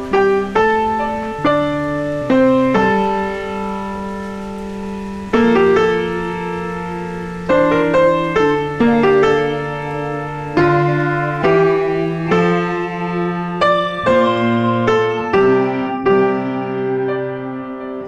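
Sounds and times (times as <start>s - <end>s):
gentle piano chords: 0.0s - 18.0s.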